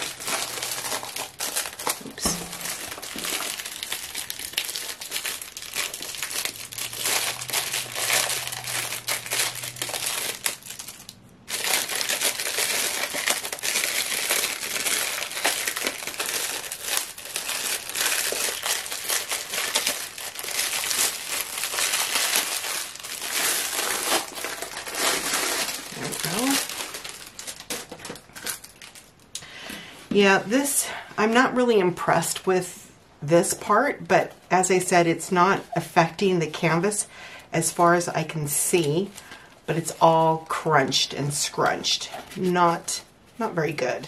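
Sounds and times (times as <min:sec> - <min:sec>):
plastic wrapping crinkling: 0:00.0 - 0:29.4, 0:38.2 - 0:44.0.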